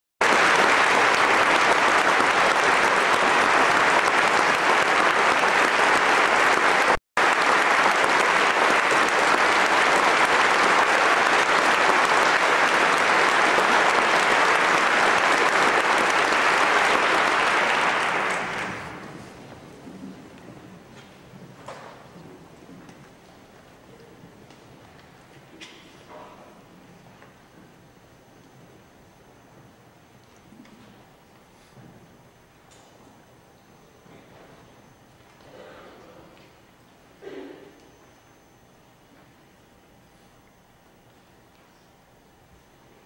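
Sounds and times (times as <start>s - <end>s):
audience applauding: 0.2s - 22.2s.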